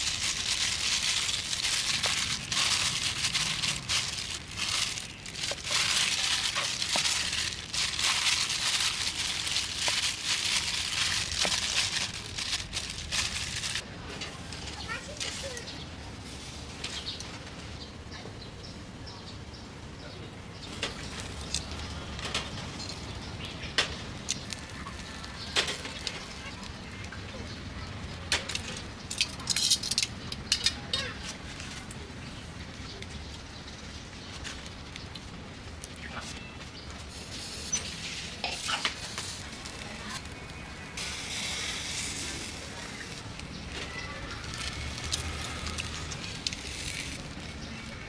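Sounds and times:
meat grilling over charcoal: 0.0s - 13.8s, 37.1s - 48.0s
chicken sizzling on charcoal grill: 37.1s - 48.0s.

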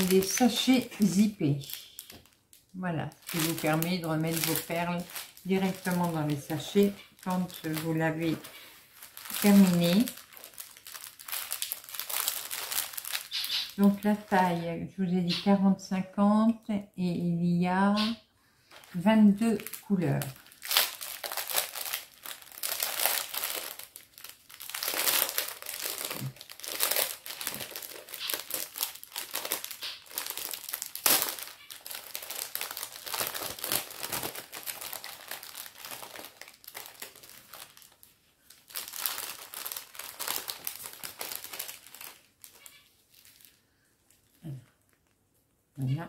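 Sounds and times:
plastic bags crinkling: 0.0s - 14.6s, 18.7s - 45.2s.

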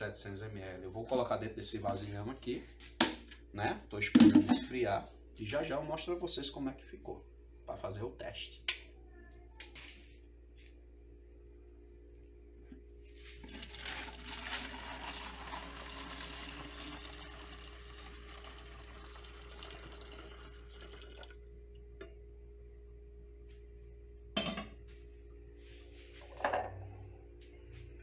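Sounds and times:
liquid pouring into glass jar: 13.4s - 21.7s.

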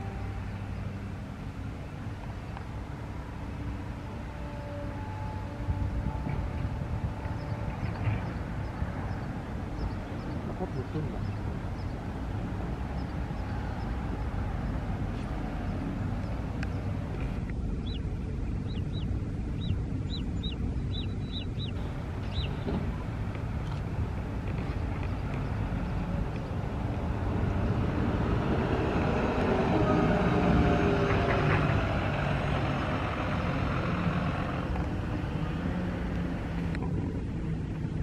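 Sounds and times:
bus passing close: 0.0s - 18.0s, 18.6s - 38.0s
low engine rumble: 0.0s - 38.0s
small bird chirping: 17.8s - 18.0s, 18.6s - 22.6s.

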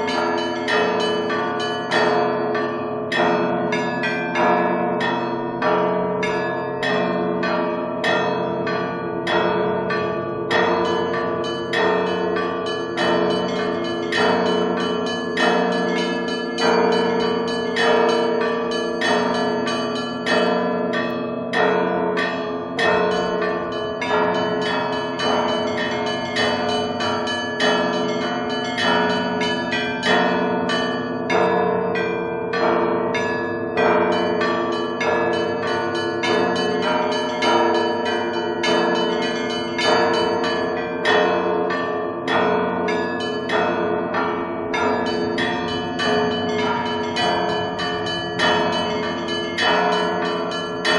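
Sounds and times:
bells ringing: 0.0s - 50.9s.

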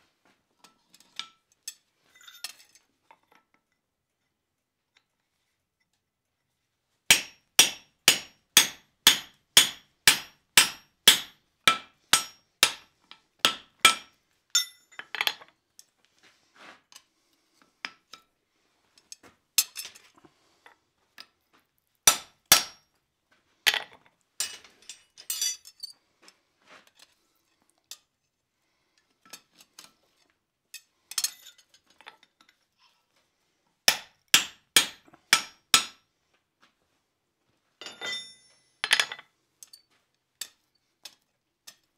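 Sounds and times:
light metal taps and clinks: 0.6s - 3.8s, 14.5s - 16.0s, 23.7s - 26.0s, 30.7s - 32.6s, 37.8s - 41.9s.

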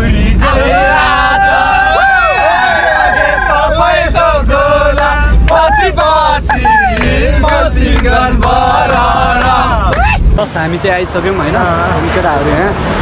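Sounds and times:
young men chanting and shouting: 0.0s - 12.5s
bus engine rumble: 0.0s - 13.0s.

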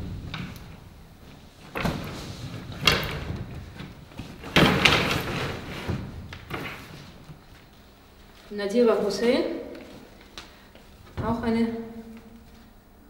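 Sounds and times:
paper posters rustling: 1.2s - 12.8s.

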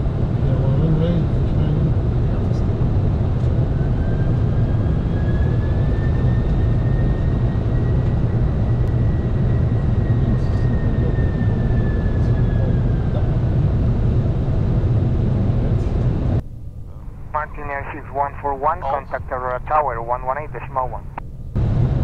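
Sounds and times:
airflow and engines rumble: 0.0s - 22.0s
faint high whine: 3.8s - 13.4s, 15.8s - 21.6s.

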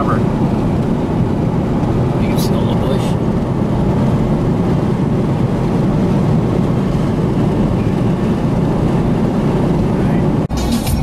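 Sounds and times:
road and engine noise in cabin: 0.0s - 11.0s.

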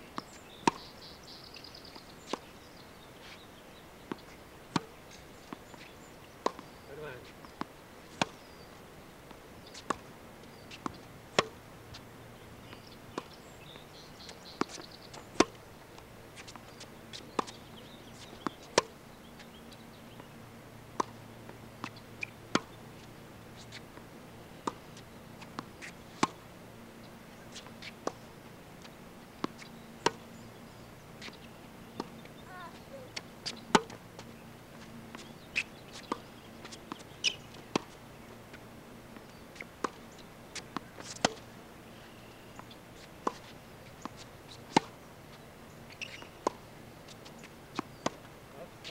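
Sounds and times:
tennis balls struck by rackets: 0.2s - 0.9s, 4.1s - 8.4s, 9.2s - 12.1s, 12.7s - 15.6s, 16.4s - 21.2s, 21.8s - 22.8s, 23.5s - 26.4s, 28.8s - 30.5s, 32.0s - 41.6s, 45.9s - 48.9s.

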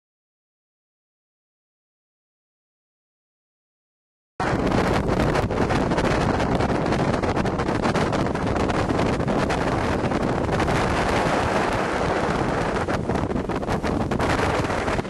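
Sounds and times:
motorboat running fast: 4.4s - 15.0s
wind buffeting microphone: 4.4s - 15.0s.

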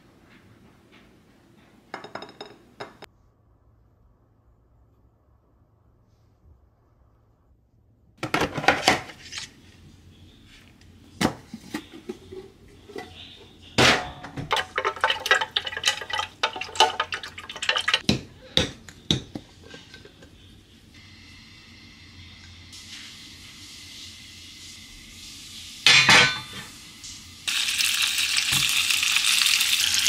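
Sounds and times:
utensil clinking on jug and pan: 13.8s - 20.3s, 25.9s - 26.7s.

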